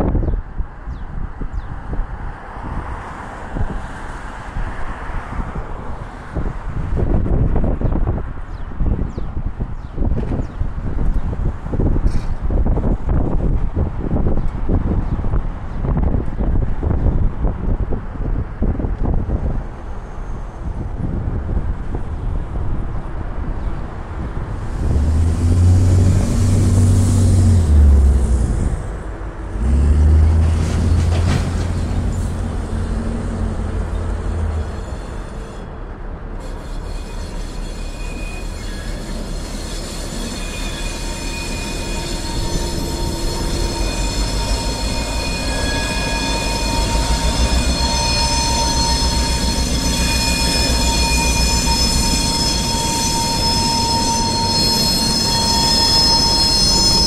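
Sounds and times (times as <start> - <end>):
diesel locomotive rumble: 0.0 - 57.0
high-pitched wheel squeal: 34.0 - 35.8, 36.4 - 57.0.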